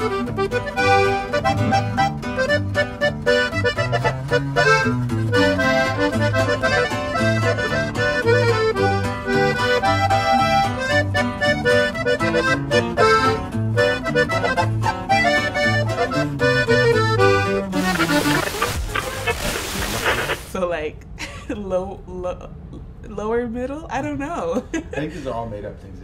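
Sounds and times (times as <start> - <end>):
instrumental music with bass beat: 0.0 - 20.5.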